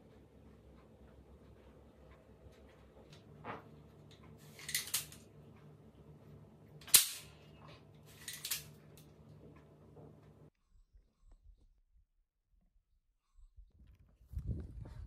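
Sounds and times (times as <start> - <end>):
slingshot toy gun clacks and snaps: 4.6 - 5.2.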